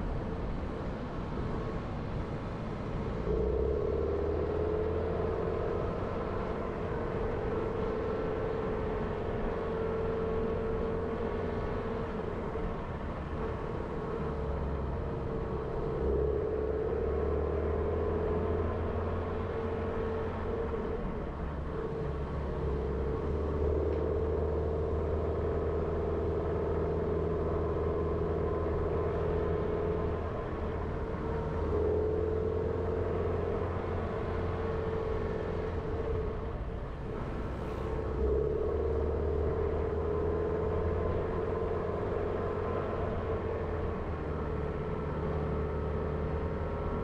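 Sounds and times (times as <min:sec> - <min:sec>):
car engine and tyres droning: 0:00.0 - 0:47.0.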